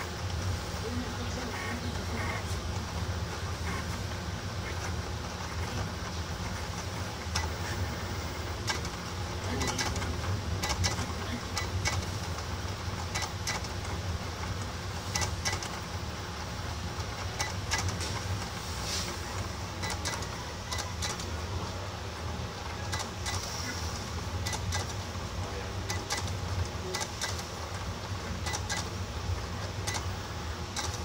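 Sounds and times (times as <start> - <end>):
plotter motors humming: 0.0 - 31.0
plotter carriage clicks and ticks: 8.6 - 15.9, 16.9 - 18.6, 19.3 - 21.4, 24.4 - 25.0, 25.8 - 29.0, 29.6 - 30.1, 30.7 - 31.0.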